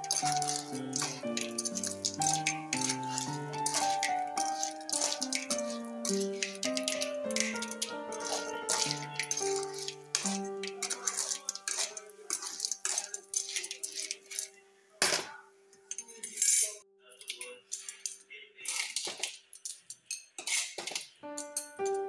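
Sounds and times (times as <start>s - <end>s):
ladle clinking clams in wok: 0.0s - 15.2s, 16.3s - 22.0s
background music with held notes: 0.0s - 16.1s, 21.2s - 22.0s.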